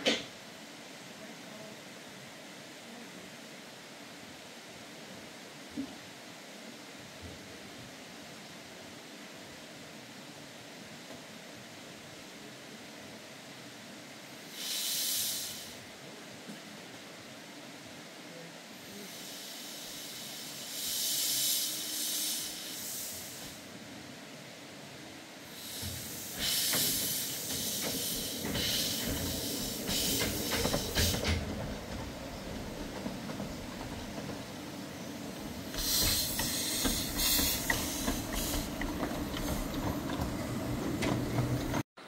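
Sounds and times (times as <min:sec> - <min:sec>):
steam locomotive hissing steam: 0:11.6 - 0:16.4, 0:18.2 - 0:41.8
wheels clicking on track: 0:25.7 - 0:41.8.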